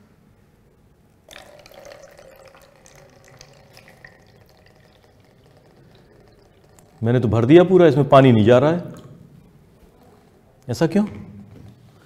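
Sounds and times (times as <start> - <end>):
water pouring into funnel: 1.3 - 8.4.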